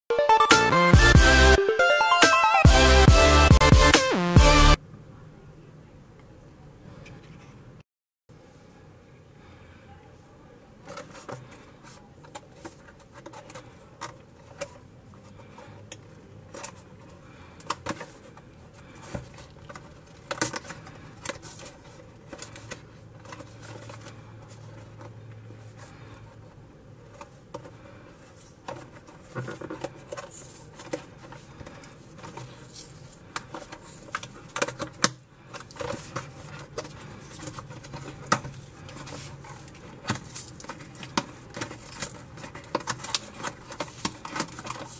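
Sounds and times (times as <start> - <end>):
cardboard cracking: 28.6 - 44.9.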